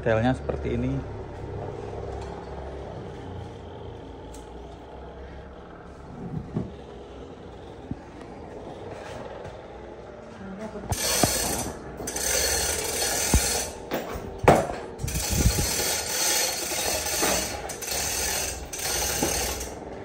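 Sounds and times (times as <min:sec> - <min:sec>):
chain hoist pawl ratcheting: 0:10.9 - 0:20.0
chain rattling: 0:11.0 - 0:19.8.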